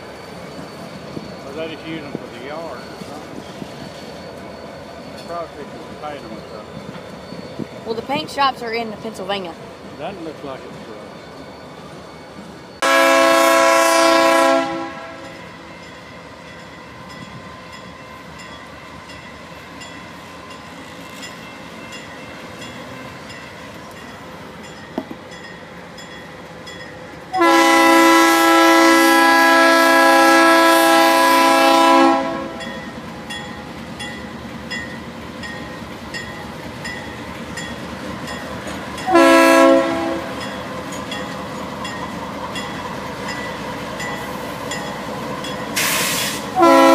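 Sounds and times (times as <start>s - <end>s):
freight train rumble: 0.0s - 46.9s
locomotive air horn blasts: 12.8s - 15.4s, 27.3s - 32.6s, 39.1s - 40.4s, 45.8s - 46.9s
train wheel clatter: 19.8s - 27.2s, 32.6s - 46.7s.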